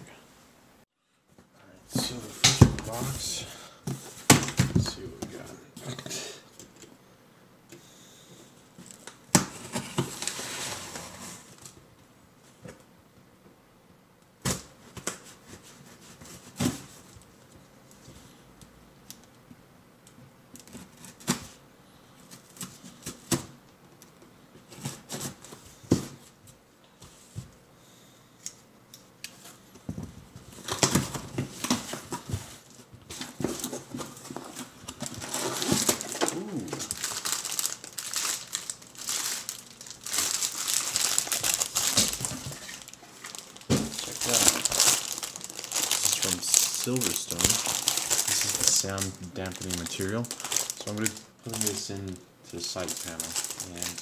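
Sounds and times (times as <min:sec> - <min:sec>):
packaging crinkling and rustling: 0:08.8 - 0:11.8, 0:29.4 - 0:54.0.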